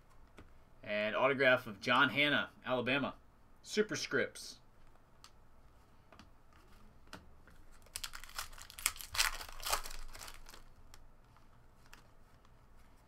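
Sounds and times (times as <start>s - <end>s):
foil wrapper crinkling and tearing: 7.8s - 11.0s.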